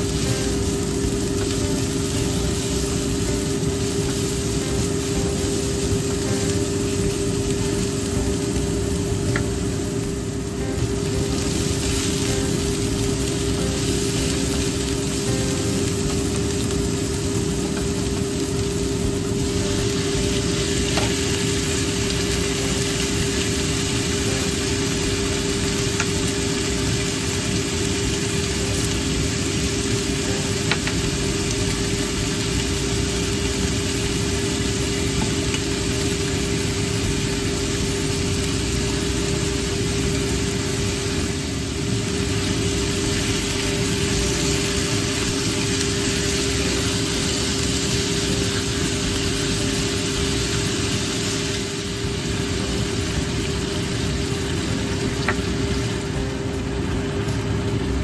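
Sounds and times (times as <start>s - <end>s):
food sizzling in hot oil: 0.0s - 58.0s
steady low hum: 0.0s - 58.0s.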